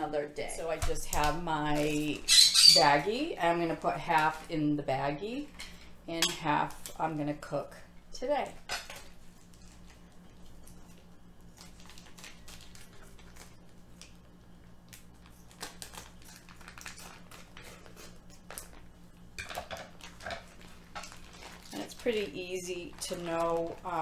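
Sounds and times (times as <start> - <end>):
faint low hum: 0.0 - 24.0
plastic wrapping crinkling: 9.1 - 24.0.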